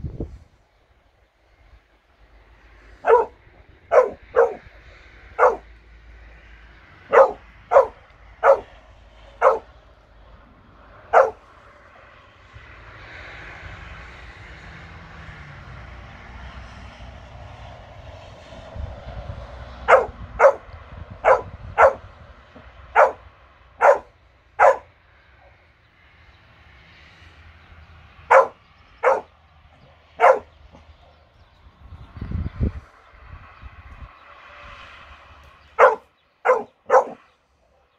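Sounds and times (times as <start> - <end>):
dog barking: 3.0 - 4.7, 5.4 - 5.7, 7.1 - 8.8, 9.4 - 9.8, 11.1 - 11.4, 19.8 - 22.1, 22.9 - 25.6, 28.3 - 31.2, 35.8 - 37.2.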